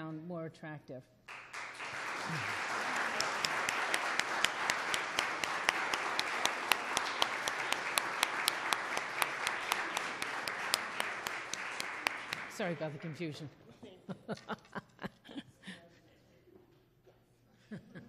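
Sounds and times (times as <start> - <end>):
audience applauding: 1.3 - 13.4
sharp claps close to microphone: 1.3 - 13.4.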